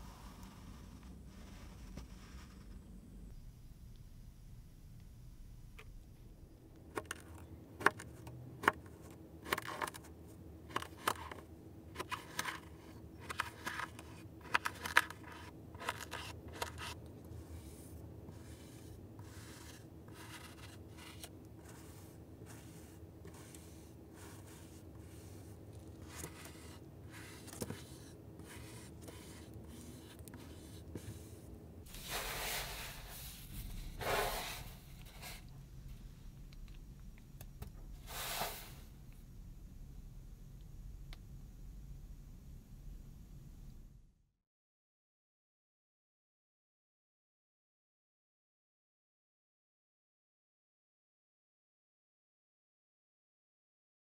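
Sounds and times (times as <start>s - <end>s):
knife cutting kinetic sand: 12.0s - 33.3s.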